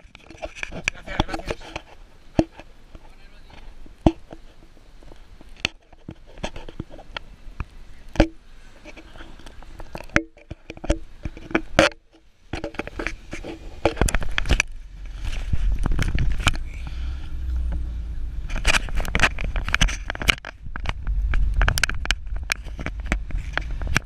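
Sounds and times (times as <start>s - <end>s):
camera knocking and scraping: 0.0s - 7.2s, 8.2s - 16.7s, 18.4s - 24.0s
car driving rumble: 13.6s - 24.0s.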